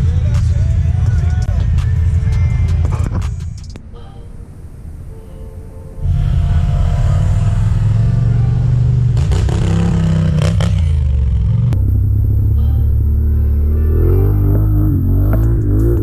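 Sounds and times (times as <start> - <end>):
atv engines running: 6.0 - 16.0
quad passing with clatter: 6.0 - 16.0.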